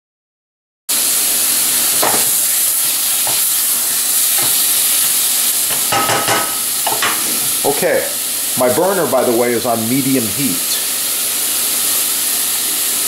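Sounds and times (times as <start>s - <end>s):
meat sizzling in a pot: 0.9s - 13.0s
spoon stirring and scraping: 3.2s - 3.6s.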